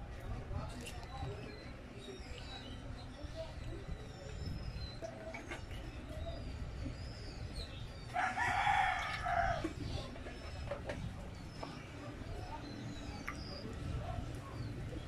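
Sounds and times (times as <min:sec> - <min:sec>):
rooster crowing: 0:08.2 - 0:09.6.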